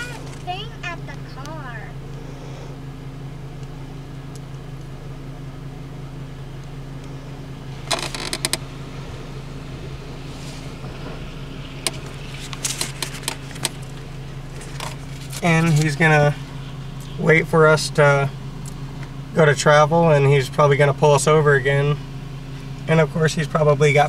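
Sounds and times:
low hum in vehicle cabin: 0:00.0 - 0:24.0.

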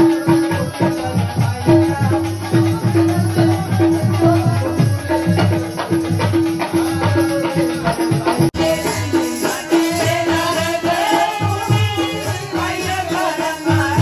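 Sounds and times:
person singing: 0:00.0 - 0:14.0
rattling percussion: 0:00.0 - 0:14.0
repeating rhythmic beat: 0:00.0 - 0:14.0.

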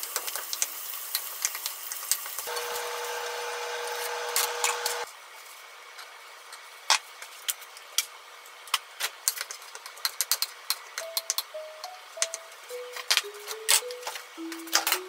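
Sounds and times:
pan humming on stove: 0:00.0 - 0:05.1
frying hiss: 0:00.0 - 0:13.4
soft music notes: 0:11.0 - 0:15.0.

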